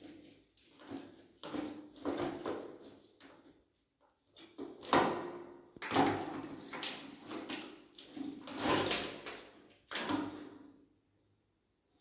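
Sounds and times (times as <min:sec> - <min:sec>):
plastic hose scraping and rubbing: 0:08.1 - 0:09.4.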